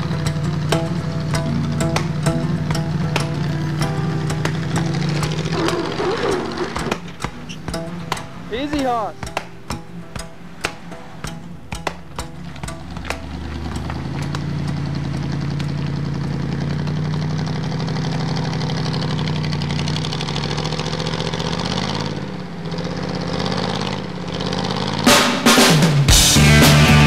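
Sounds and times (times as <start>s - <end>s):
engine running at low revs: 0.0s - 8.5s, 12.2s - 27.0s
loud rock music: 25.1s - 27.0s.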